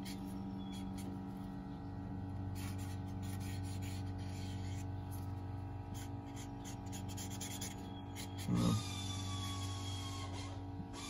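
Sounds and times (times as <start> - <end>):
marker drawing on cardboard: 2.5 - 11.0.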